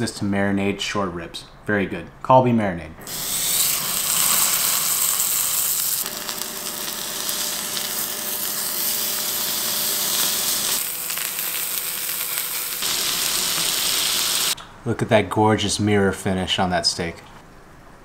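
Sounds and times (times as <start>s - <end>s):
beef sizzling in a skillet: 3.1s - 14.6s.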